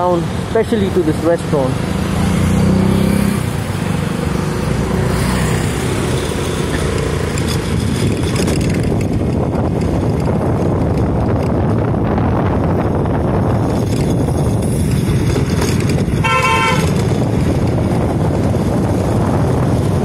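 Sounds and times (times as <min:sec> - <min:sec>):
small vehicle engine running: 0:01.8 - 0:11.9.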